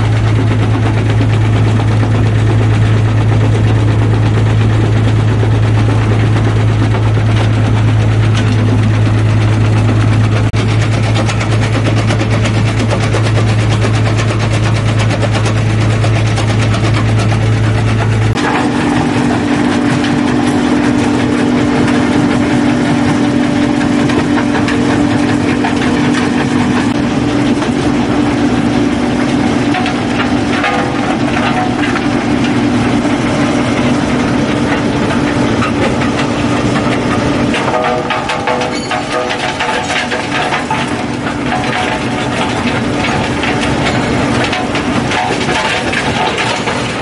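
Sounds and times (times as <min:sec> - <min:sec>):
rock crusher engine drone: 0:00.0 - 0:47.0
rocks rattling and clattering: 0:00.0 - 0:47.0.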